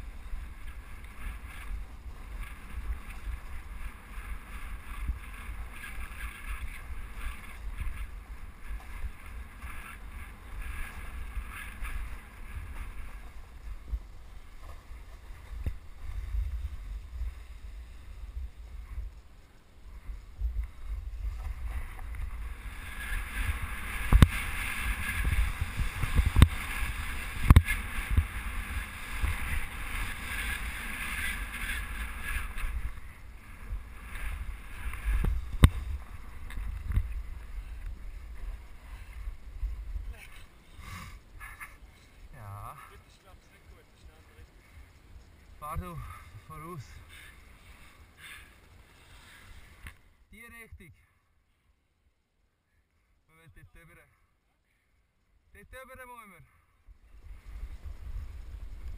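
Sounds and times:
snow scraping under board: 0.0s - 19.1s, 19.9s - 42.5s, 45.9s - 49.8s
wind buffeting microphone: 0.0s - 40.6s, 56.8s - 58.9s.

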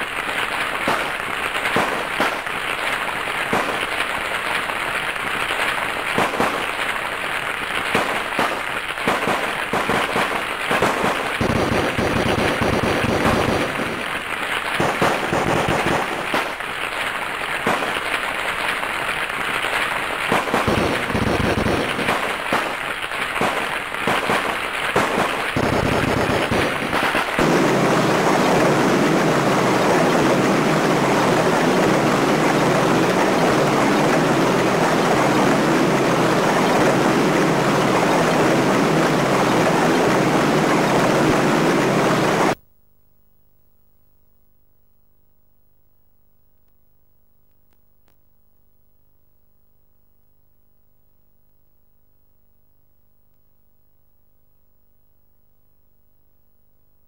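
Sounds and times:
rapid crackling gunfire: 0.0s - 42.6s
explosion rumbles: 7.9s - 16.8s, 20.3s - 42.6s
steady engine drone: 25.6s - 42.6s.

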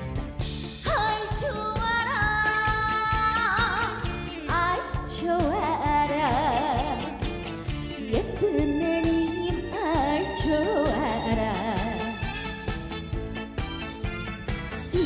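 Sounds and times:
band accompaniment with steady beat: 0.0s - 15.0s
woman singing with vibrato: 0.8s - 7.2s, 8.0s - 12.2s.

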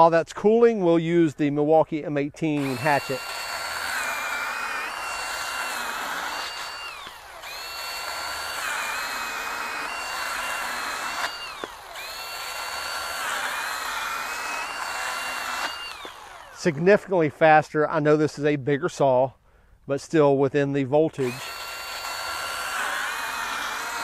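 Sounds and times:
chainsaw cutting log: 2.4s - 17.6s, 21.2s - 24.0s.

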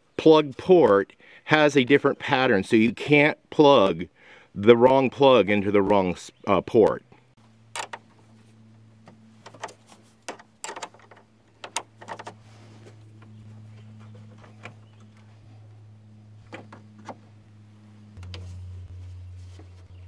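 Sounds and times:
steady low hum: 7.0s - 20.0s.

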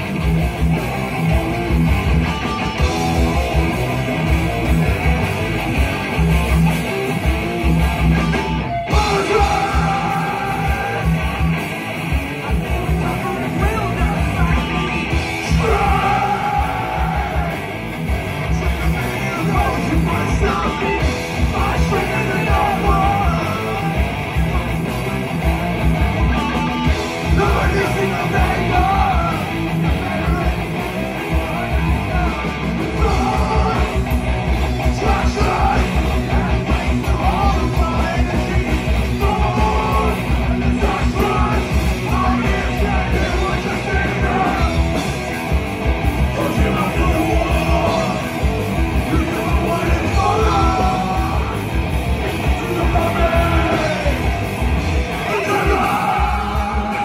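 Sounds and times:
heavy metal band playing: 0.0s - 57.0s
people yelling into microphones: 8.9s - 11.6s, 13.1s - 17.7s, 55.1s - 57.0s.

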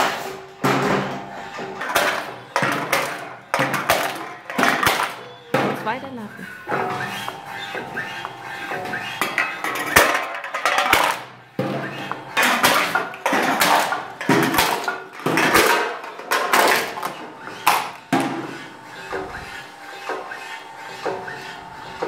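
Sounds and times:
metal cans crunching: 9.3s - 11.3s.

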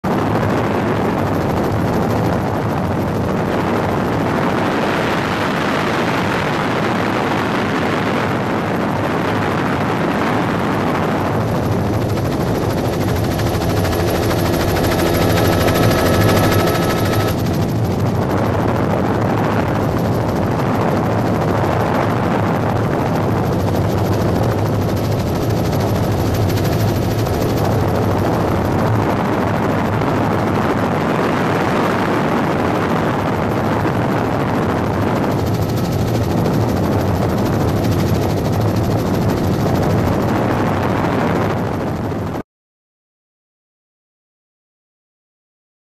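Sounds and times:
helicopter rotor and engine noise: 0.0s - 42.4s
steady whining tones: 10.8s - 20.3s, 22.7s - 29.6s.

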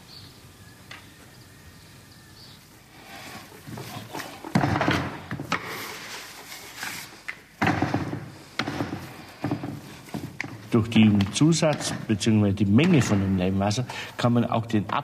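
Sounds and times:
sharp knocks and thumps: 3.6s - 6.0s, 7.6s - 12.2s, 12.8s - 13.4s.

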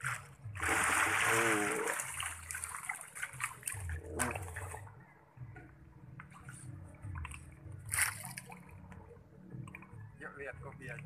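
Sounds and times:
fish splashing at surface: 0.1s - 4.8s.

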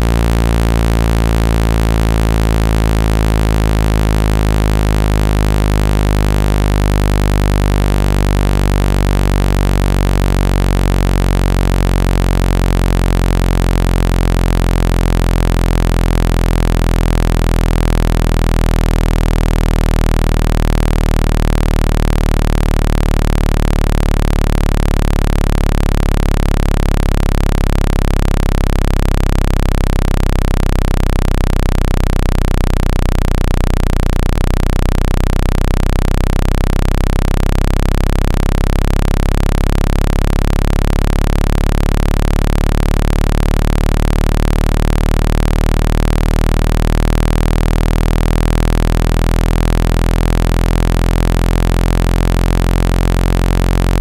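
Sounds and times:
low synthesized tone: 0.0s - 54.0s.

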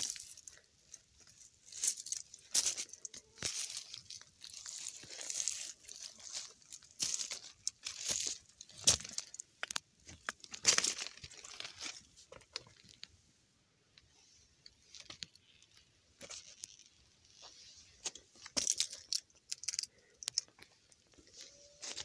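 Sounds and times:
footsteps crunching on dry leaves: 1.3s - 9.3s.

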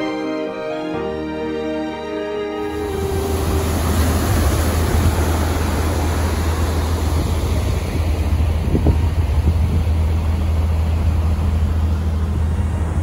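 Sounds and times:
churning wake rushing: 0.0s - 13.0s
ferry engine drone: 0.0s - 13.0s
wind noise on microphone: 2.7s - 13.0s.

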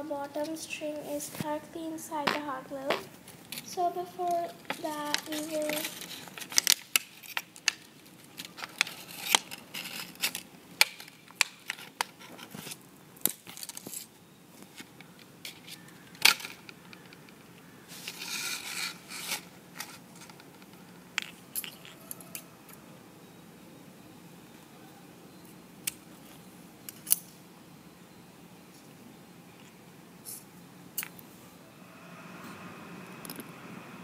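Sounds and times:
plastic sheet crinkling: 3.3s - 12.8s.

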